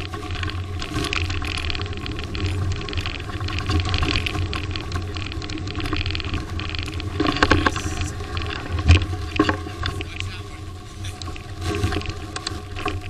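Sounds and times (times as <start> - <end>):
wind and tyre rumble: 0.0 - 13.0.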